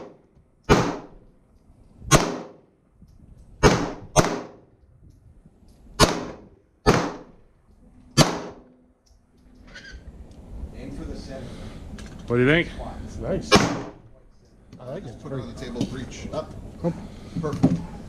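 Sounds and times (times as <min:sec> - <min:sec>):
pistol shots cracking: 0:00.0 - 0:01.2, 0:02.1 - 0:02.6, 0:03.6 - 0:04.7, 0:06.0 - 0:07.4, 0:08.2 - 0:08.7, 0:13.5 - 0:14.0.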